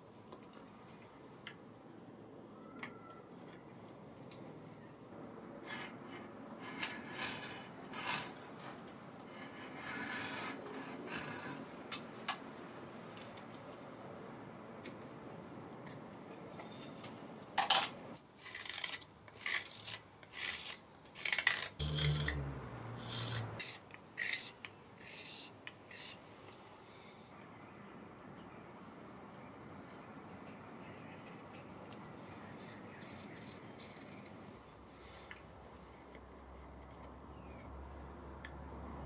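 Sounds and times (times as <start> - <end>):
carving knife slicing wood: 18.4 - 26.2
drawknife scraping wood: 18.4 - 26.2.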